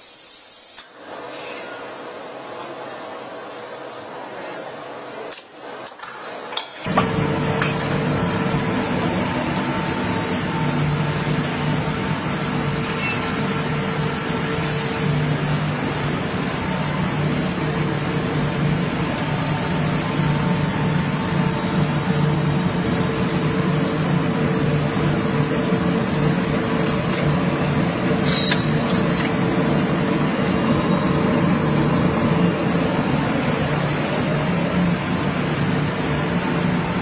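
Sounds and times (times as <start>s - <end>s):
printing press humming and rumbling: 0.9s - 37.0s.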